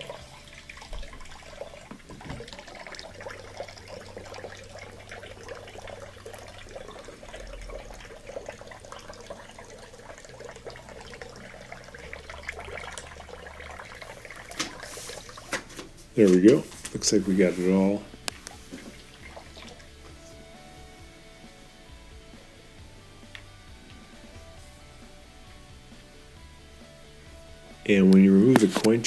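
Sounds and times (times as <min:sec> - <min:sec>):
water pouring into plastic bowl: 0:00.0 - 0:20.6.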